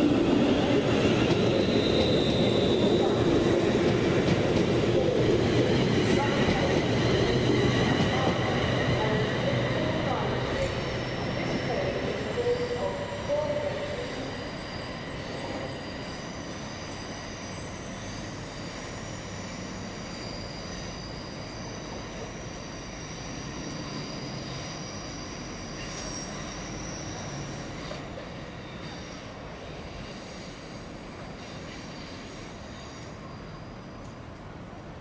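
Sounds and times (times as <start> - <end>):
train wheels squealing: 0.0 - 34.3
train rumble: 0.0 - 35.0.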